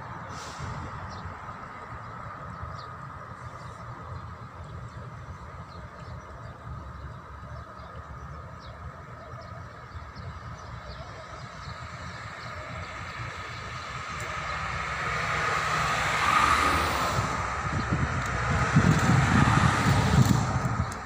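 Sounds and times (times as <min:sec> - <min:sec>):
low rumble: 0:12.0 - 0:21.0
vehicle passing: 0:12.6 - 0:21.0.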